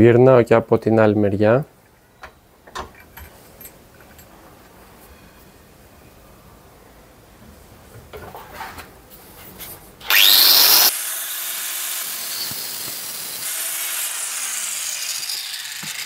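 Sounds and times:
angle grinder spinning up: 0:10.0 - 0:16.0
grinder cutting steel: 0:10.0 - 0:16.0.

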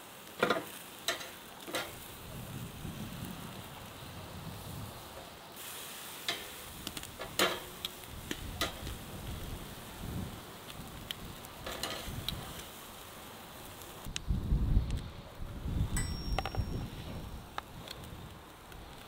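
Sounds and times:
vegetables sizzling: 0:00.0 - 0:14.1
metal tongs clicking on grill grate: 0:00.4 - 0:02.0, 0:06.3 - 0:09.0, 0:11.0 - 0:12.7.

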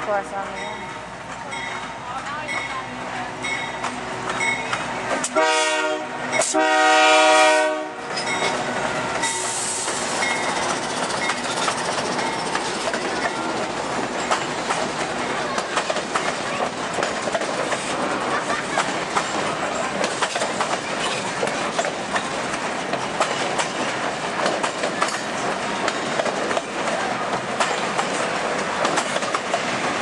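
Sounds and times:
train cars rolling past: 0:00.0 - 0:30.0
train horn blasts: 0:05.2 - 0:08.2, 0:09.2 - 0:09.9.

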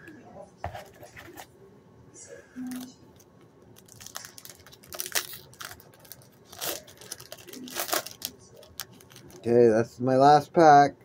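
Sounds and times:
wrapper crinkling and tearing: 0:03.7 - 0:09.5.

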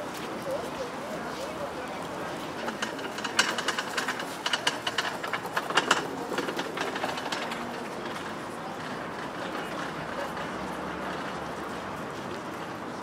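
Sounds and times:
pedestrian street ambience: 0:00.0 - 0:13.0
sharp clicks and clatters: 0:02.3 - 0:12.4.

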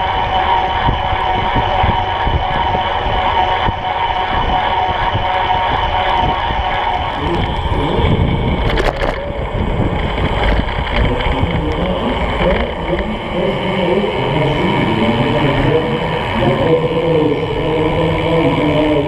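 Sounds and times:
tyres rumbling on asphalt: 0:00.0 - 0:19.0
wind rushing over microphone: 0:00.0 - 0:19.0
rattle of clicks: 0:08.6 - 0:13.1.

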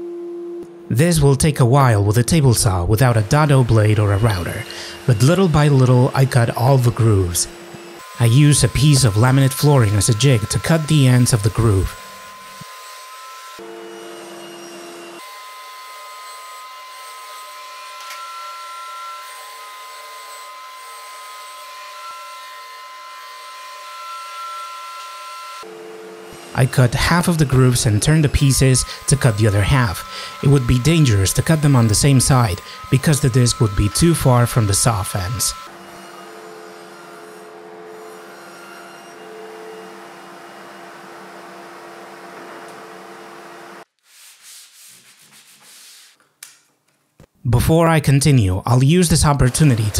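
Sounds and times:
table saw cutting plywood: 0:01.9 - 0:43.9, 0:49.0 - 0:49.9.

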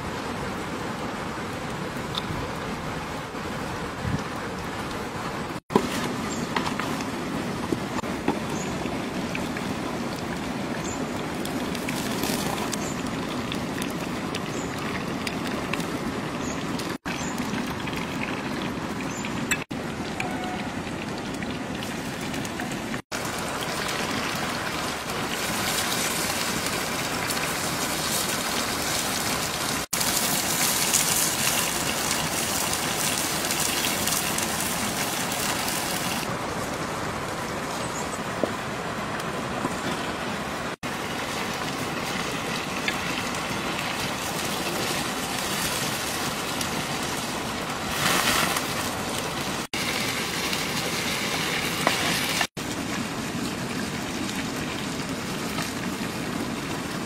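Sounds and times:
mushrooms sizzling in a pan: 0:25.3 - 0:36.2.

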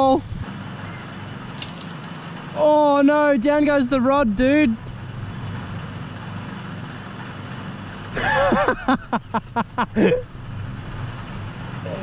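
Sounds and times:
bursts of laughter: 0:08.1 - 0:10.3.

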